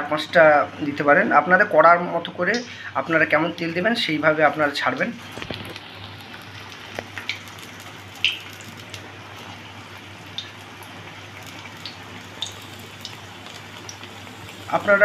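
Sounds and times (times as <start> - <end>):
fritters deep-frying in oil: 0.0 - 15.0.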